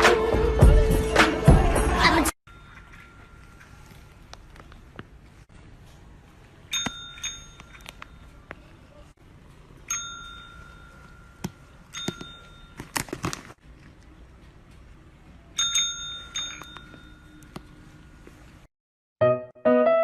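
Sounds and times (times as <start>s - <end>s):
desk service bell ringing: 6.7s - 8.4s, 9.9s - 12.8s, 15.6s - 17.6s.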